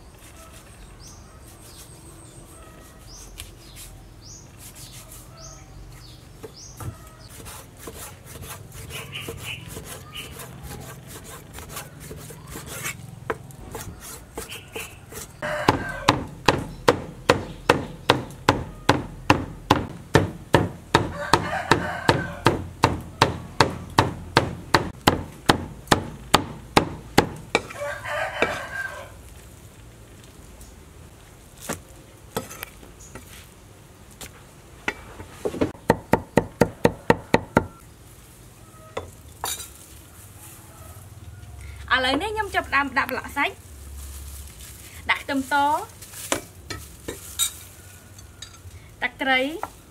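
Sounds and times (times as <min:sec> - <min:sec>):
cleaver chopping on wooden board: 0:09.2 - 0:27.8.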